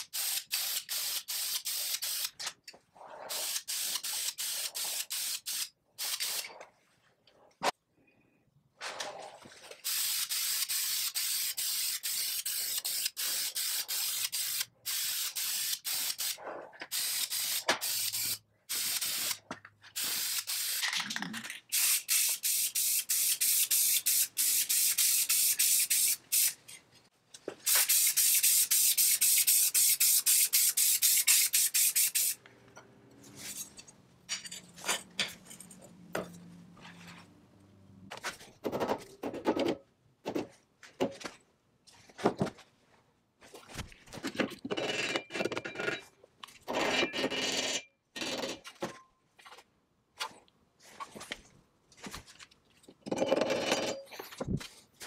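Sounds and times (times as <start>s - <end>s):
spray paint hissing: 0.0s - 2.4s, 3.3s - 6.4s, 9.8s - 19.4s, 20.0s - 20.9s, 21.7s - 26.6s, 27.6s - 32.4s.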